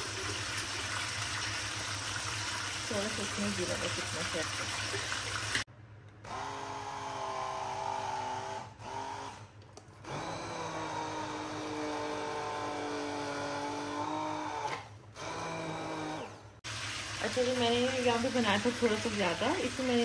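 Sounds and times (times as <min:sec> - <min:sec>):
stick blender running: 0:06.2 - 0:20.0.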